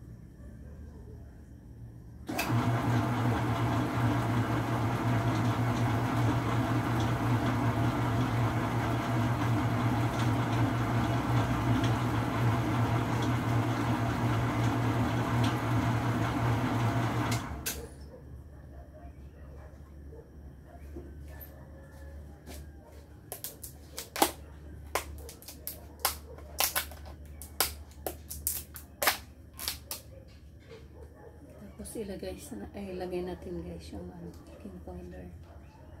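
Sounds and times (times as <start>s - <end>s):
stand mixer motor humming: 2.3s - 17.6s.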